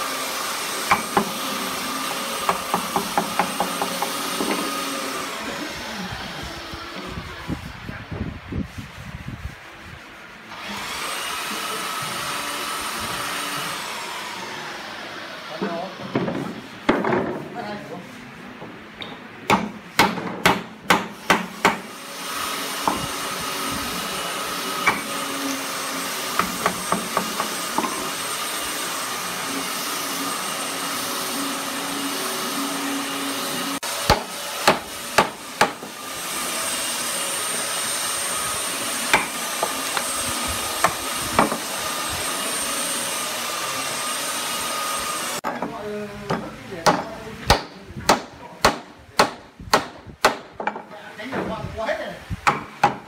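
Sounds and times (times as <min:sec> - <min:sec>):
hammer driving nails into wood: 0:19.5 - 0:21.9, 0:24.8 - 0:25.1, 0:46.9 - 0:50.8, 0:52.4 - 0:53.0.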